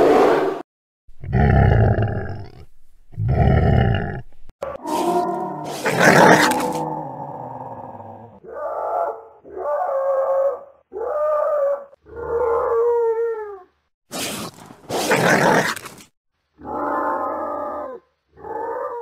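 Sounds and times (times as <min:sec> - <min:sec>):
coyote raspy growl: 0:01.2 - 0:10.3, 0:14.2 - 0:16.0, 0:16.6 - 0:19.0.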